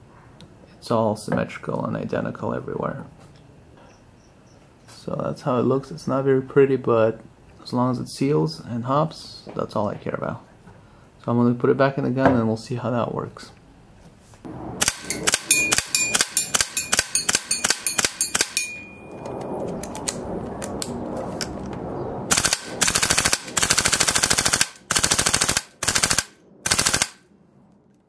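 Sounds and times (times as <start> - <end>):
steady rushing noise: 14.4 - 27.8
airsoft rifle full-auto bursts: 14.8 - 18.6, 22.3 - 27.2.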